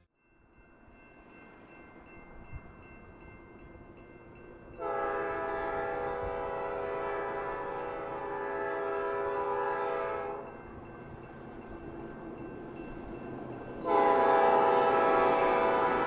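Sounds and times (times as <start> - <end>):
locomotive air horn: 4.8 - 10.5, 13.8 - 16.0.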